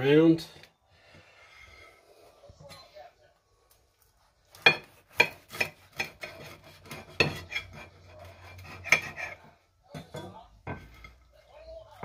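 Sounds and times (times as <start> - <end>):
knife sawing through sandwich: 5.1 - 9.4.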